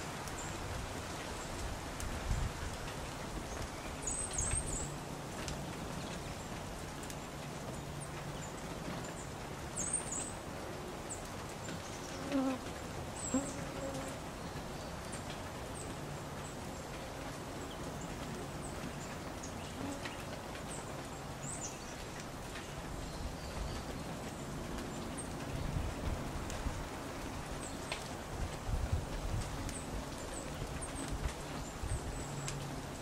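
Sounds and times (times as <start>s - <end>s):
steady low hum and hiss: 0.0s - 33.0s
small songbirds chirping: 3.1s - 10.4s, 13.2s - 26.4s, 29.3s - 33.0s.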